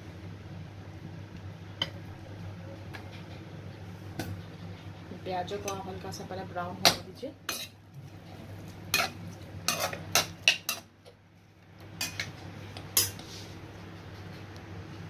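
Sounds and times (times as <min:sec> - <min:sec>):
metal spoon scraping and clinking: 0:08.9 - 0:10.8.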